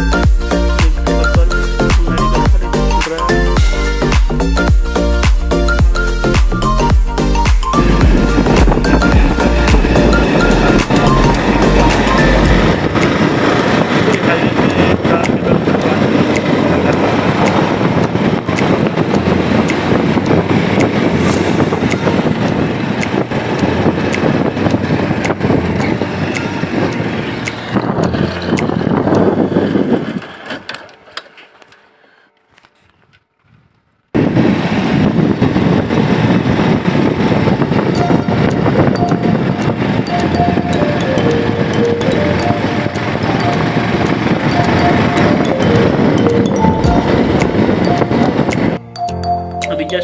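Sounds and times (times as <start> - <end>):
road noise: 0.0 - 50.0
motorcycle engine: 3.6 - 31.8
wind buffeting the microphone: 6.3 - 30.9, 33.0 - 48.8.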